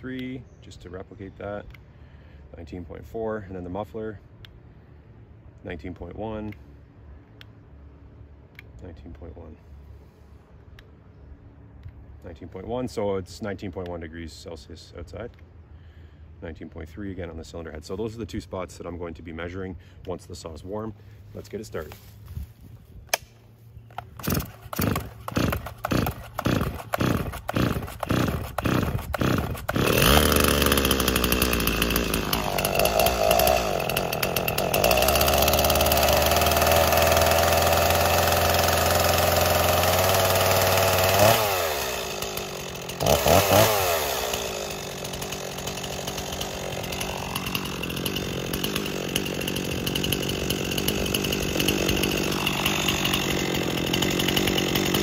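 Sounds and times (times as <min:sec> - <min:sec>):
chainsaw engine revving and idling: 0:23.9 - 0:55.0
chainsaw pull-start cranking: 0:23.9 - 0:55.0.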